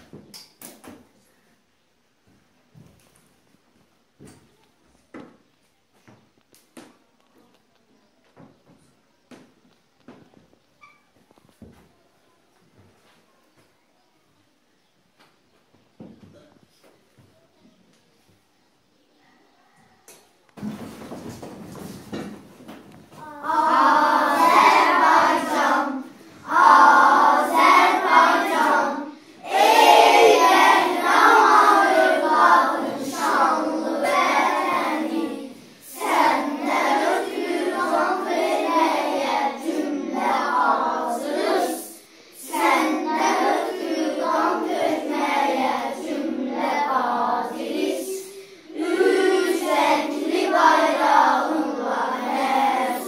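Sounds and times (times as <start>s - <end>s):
children singing together: 23.1s - 53.0s.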